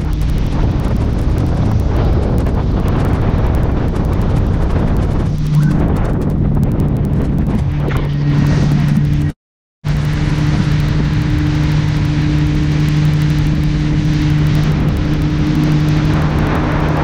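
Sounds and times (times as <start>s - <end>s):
speedboat engine running: 0.0s - 17.0s.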